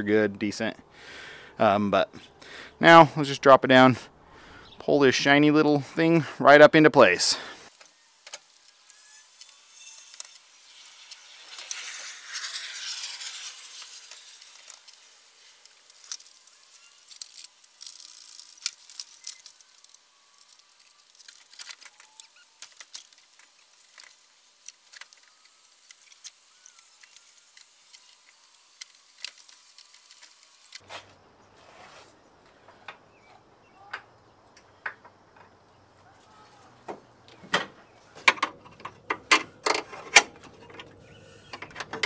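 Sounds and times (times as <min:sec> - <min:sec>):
rustling hissing noise: 0:05.1 - 0:33.2
hoist chain moving: 0:15.7 - 0:24.1.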